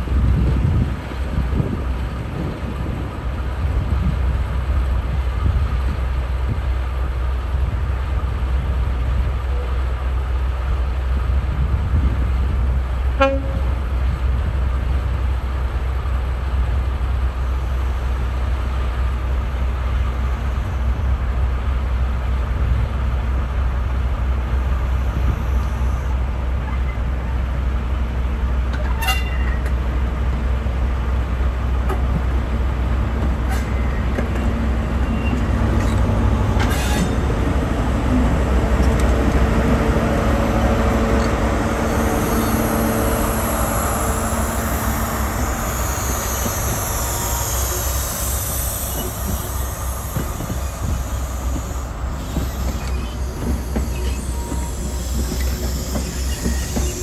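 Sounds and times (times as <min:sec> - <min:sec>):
diesel train engine rumbling: 0:00.0 - 0:57.0
high hiss: 0:41.7 - 0:57.0.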